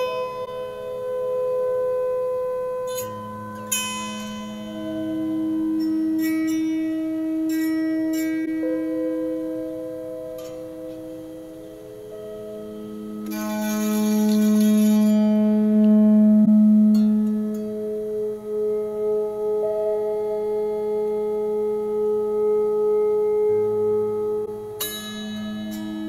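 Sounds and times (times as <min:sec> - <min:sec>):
electric autoharp drone: 0:00.0 - 0:26.0
strummed strings: 0:02.9 - 0:17.7.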